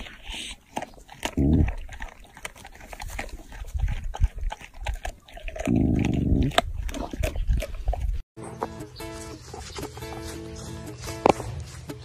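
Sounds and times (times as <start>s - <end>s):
dog growling: 0.0s - 8.1s.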